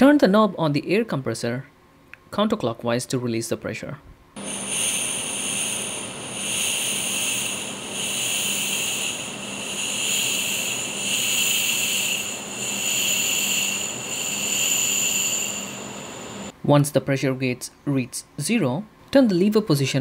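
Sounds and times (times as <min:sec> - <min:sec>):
compressed air hissing: 0:04.4 - 0:16.5
thin high whistle: 0:04.4 - 0:16.5.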